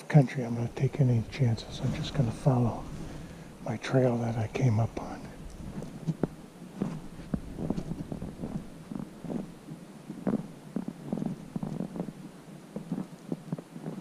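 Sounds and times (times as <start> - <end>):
footsteps in snow: 0.6 - 14.0.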